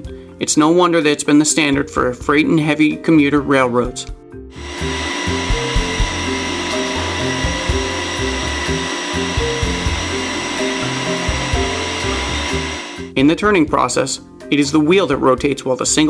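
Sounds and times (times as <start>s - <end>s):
background music bass line: 4.5s - 13.3s
wheel lathe machining whine: 4.6s - 13.1s.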